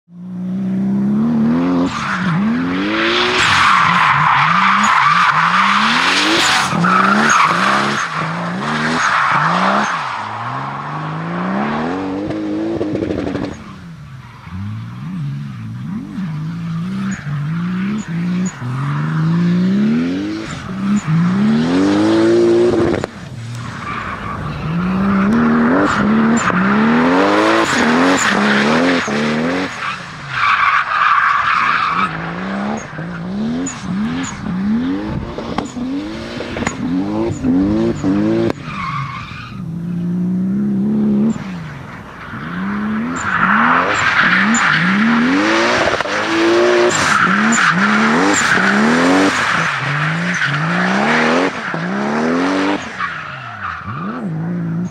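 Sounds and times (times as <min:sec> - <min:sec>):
car engine revving hard: 0:14.5 - 0:23.1, 0:24.8 - 0:29.8, 0:31.8 - 0:38.6, 0:42.6 - 0:53.1.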